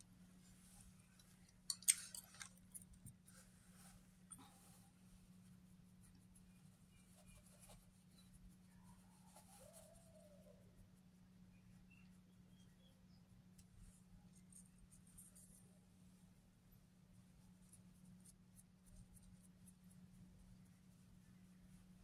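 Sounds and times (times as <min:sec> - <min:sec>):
faint steady hum: 0:00.0 - 0:22.0
small sharp clicks and smacks: 0:01.2 - 0:03.2.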